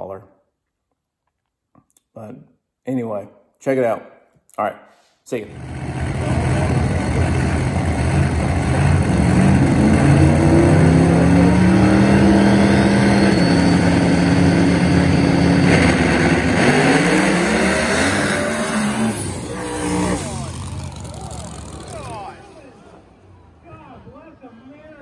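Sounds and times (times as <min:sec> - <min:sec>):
drag race car engine revving: 0:05.5 - 0:23.4.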